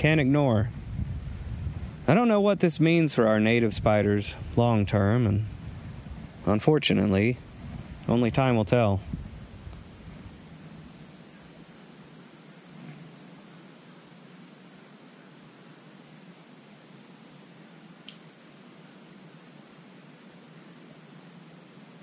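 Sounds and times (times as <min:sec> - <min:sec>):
insects chirping: 0:00.0 - 0:22.0
faint click: 0:18.0 - 0:18.3.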